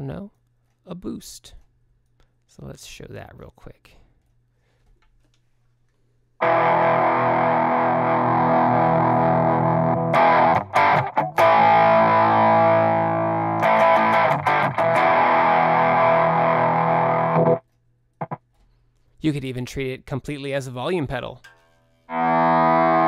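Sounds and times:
distorted electric guitar chords: 6.4s - 17.6s, 18.2s - 18.4s, 22.1s - 23.0s
scratchy guitar strums: 6.4s - 17.6s, 18.2s - 18.5s, 22.1s - 23.0s.

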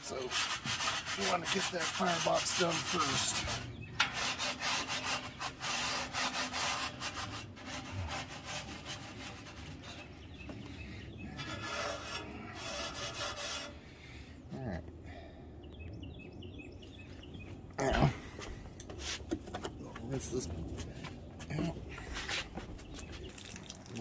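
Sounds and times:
steel wool scrubbing steel: 0.0s - 13.8s.

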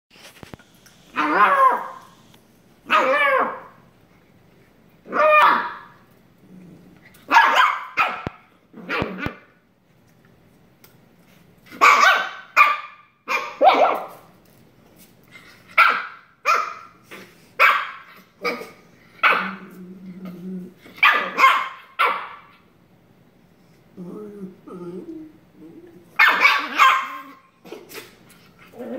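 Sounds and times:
dogs play-barking: 1.1s - 3.9s, 5.0s - 6.1s, 7.0s - 9.5s, 11.6s - 14.3s, 15.4s - 22.7s, 26.0s - 28.9s
dog growling low: 6.4s - 7.1s, 19.6s - 20.9s, 23.9s - 26.1s, 28.6s - 28.9s.

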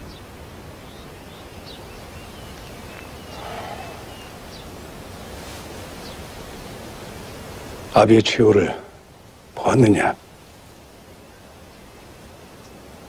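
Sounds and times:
outdoor background noise: 0.0s - 13.0s
faint bird chirps: 0.8s - 5.3s.

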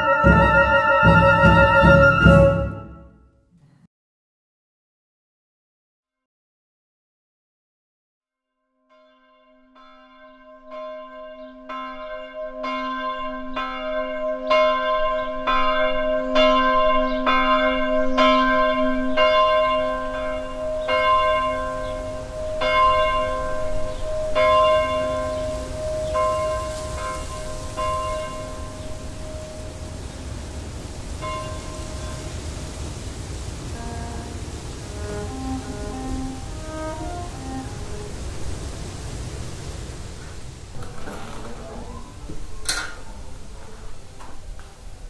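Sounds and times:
church bell tolling: 0.0s - 3.0s, 8.9s - 30.4s, 31.0s - 35.3s.

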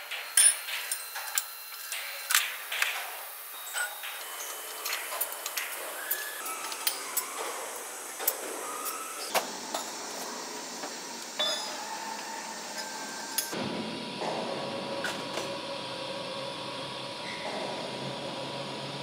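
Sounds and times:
steady factory hum: 0.0s - 19.0s
low machine hum: 4.1s - 19.0s.

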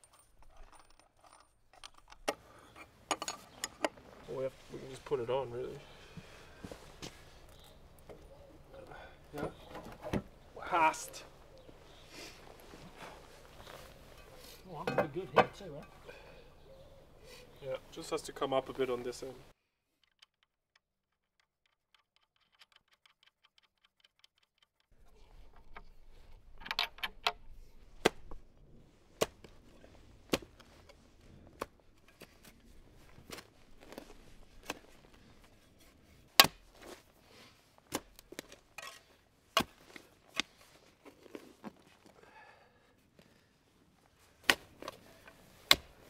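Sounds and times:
spade digging into soil: 37.9s - 40.5s.

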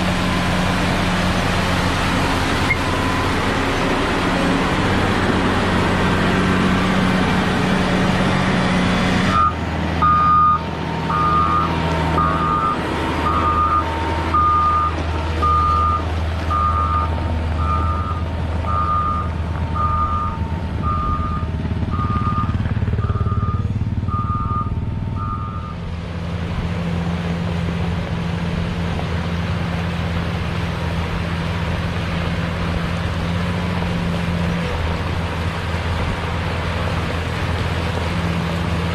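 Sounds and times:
diesel engine running: 0.0s - 38.9s
reversing alarm beeps: 9.3s - 25.8s.

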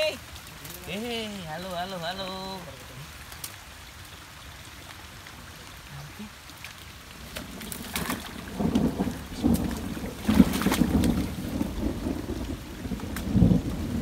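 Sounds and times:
rain falling: 0.0s - 14.0s
thunder rumbling and cracking: 7.2s - 14.0s.

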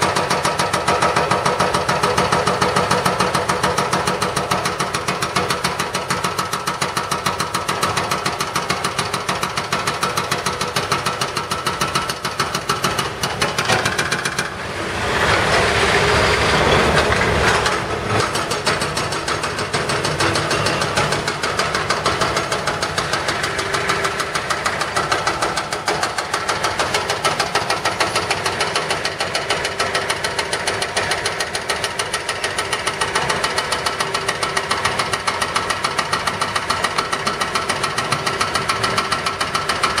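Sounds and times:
hydraulic breaker hammering concrete: 0.0s - 40.0s
diesel engines running: 13.1s - 27.4s
loud rushing noise: 14.1s - 18.5s.

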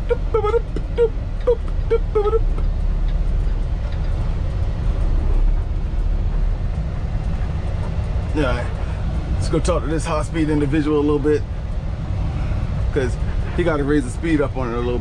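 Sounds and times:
truck diesel engine rumbling: 0.0s - 15.0s.

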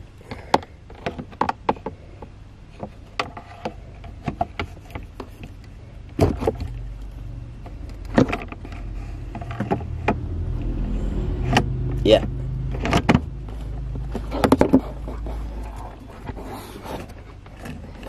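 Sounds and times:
low steady hum: 0.0s - 18.0s
plastic clicks and knocks: 0.3s - 6.8s, 7.7s - 10.3s, 14.0s - 15.0s.

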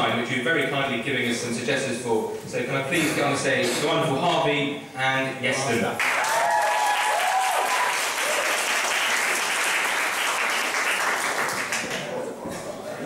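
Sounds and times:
people whooping: 6.0s - 8.9s
audience applauding: 6.0s - 12.4s.

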